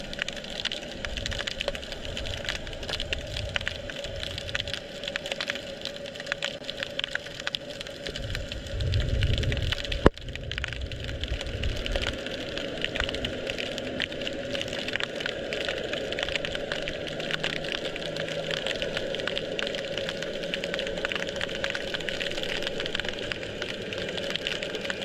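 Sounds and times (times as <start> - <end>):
underwater crackle of clicks: 0.0 - 25.0
low rumble: 8.1 - 12.2.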